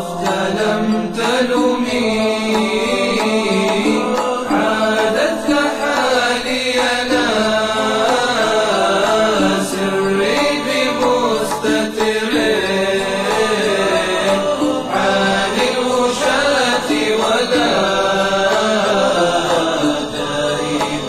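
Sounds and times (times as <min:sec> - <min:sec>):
person singing a chant: 0:00.0 - 0:21.0.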